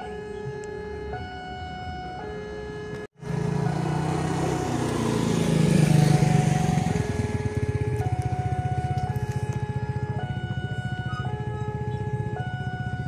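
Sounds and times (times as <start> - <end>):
passing vehicle engine: 3.2 - 13.0.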